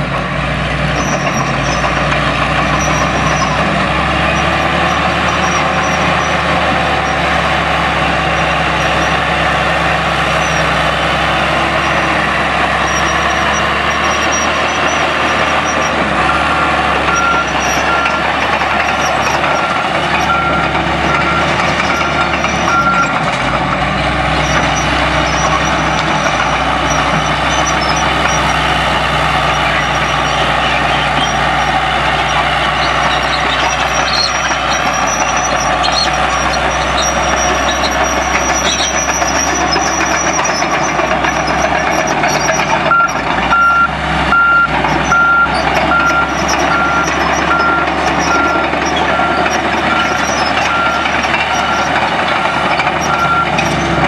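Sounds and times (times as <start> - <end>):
bulldozer diesel engine running: 0.0 - 54.0
back-up alarm beeping: 11.5 - 23.2, 24.4 - 40.8, 41.6 - 53.8.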